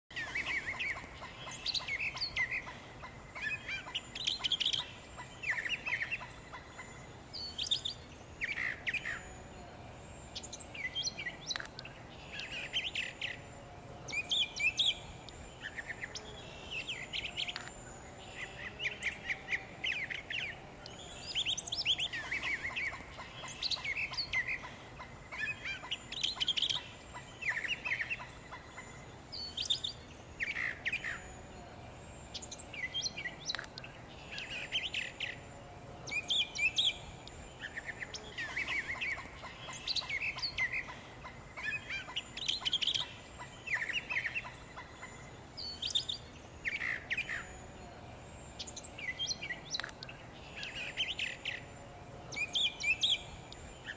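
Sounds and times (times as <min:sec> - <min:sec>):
birds chirping: 0:00.1 - 0:53.9.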